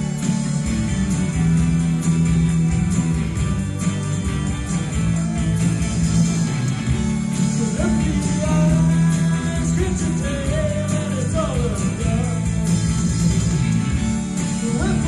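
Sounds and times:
rock band playing live: 0.0 - 15.0
person singing: 7.2 - 12.9, 14.3 - 15.0.

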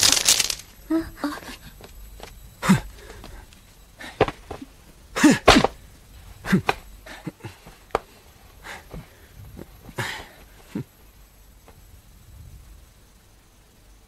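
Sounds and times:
person coughing: 5.2 - 5.7.

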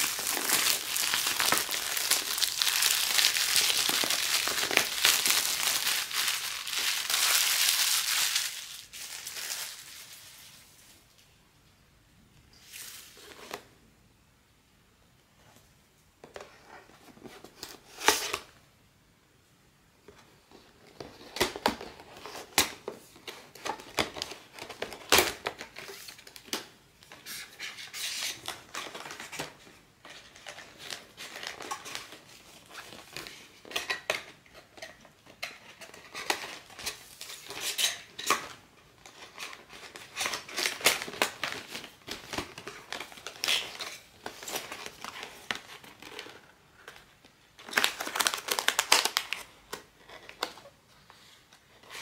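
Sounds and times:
plastic wrapping crinkling and tearing: 0.0 - 11.0, 20.5 - 50.7.

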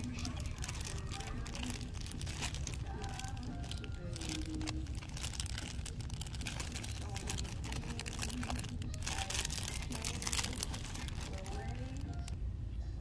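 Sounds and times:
plastic packaging crinkling: 0.0 - 12.4
low steady hum: 0.0 - 13.0.

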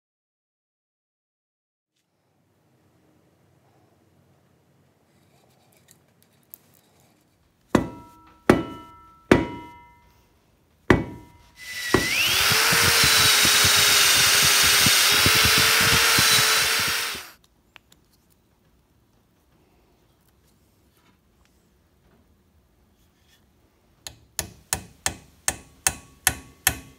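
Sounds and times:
electric drill boring through steel: 11.6 - 17.4.

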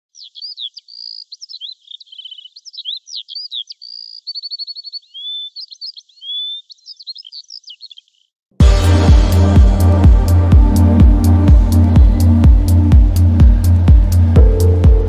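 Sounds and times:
songbird singing: 0.0 - 8.4.

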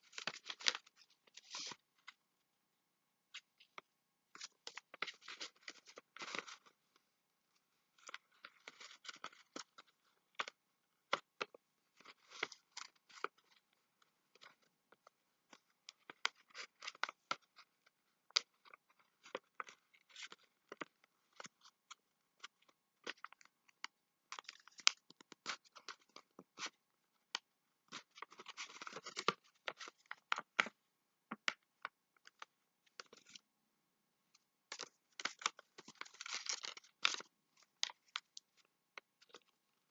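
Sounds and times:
paper folding and creasing: 0.0 - 2.2, 27.9 - 30.7, 34.7 - 39.9
paper rustling: 0.0 - 2.2, 34.7 - 38.4.

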